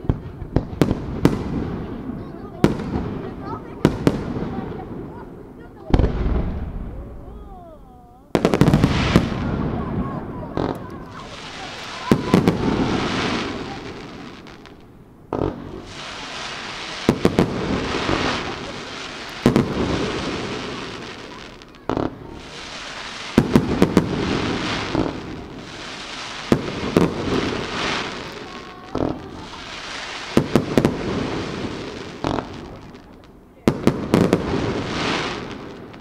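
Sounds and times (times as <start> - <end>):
fireworks bangs: 0.0 - 36.0.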